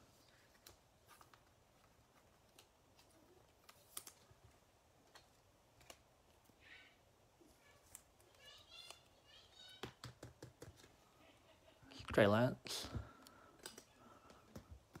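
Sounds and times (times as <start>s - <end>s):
trading cards clicking: 13.5s - 15.0s.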